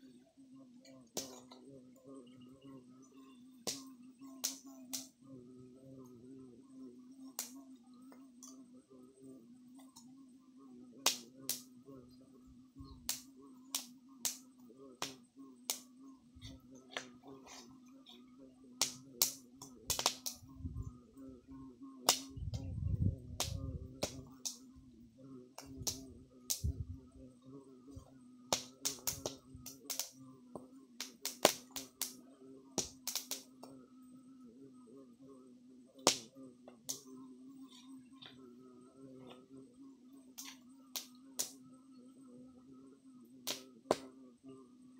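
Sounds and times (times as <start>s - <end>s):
low hum: 0.0s - 30.8s.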